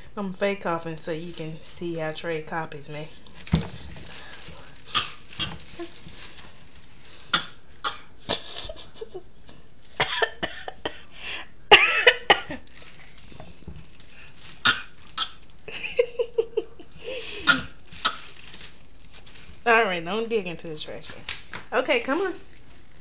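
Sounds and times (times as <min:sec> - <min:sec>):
woman fake coughing: 0:10.0 - 0:11.0, 0:11.7 - 0:12.6, 0:17.4 - 0:17.8
toddler fake coughing: 0:17.5 - 0:18.2.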